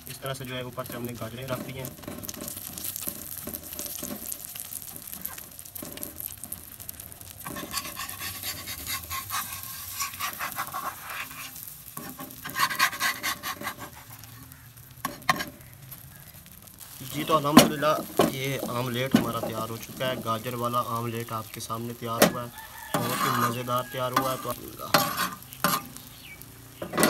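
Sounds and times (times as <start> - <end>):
omelette sizzling in a pan: 0.0 - 27.0
metal spatula scraping a pan: 0.8 - 6.4, 7.4 - 15.7, 22.1 - 26.1, 26.8 - 27.0.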